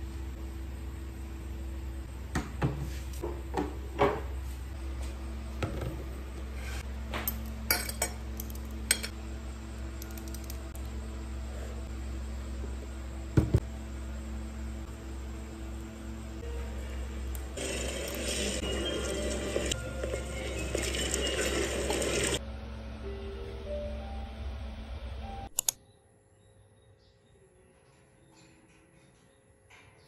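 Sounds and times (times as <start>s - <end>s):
steady low hum: 0.0s - 17.6s.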